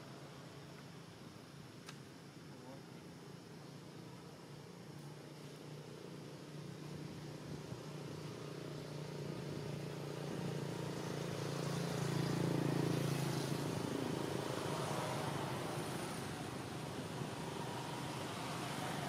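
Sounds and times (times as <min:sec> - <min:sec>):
vehicle driving past: 0:06.8 - 0:19.0.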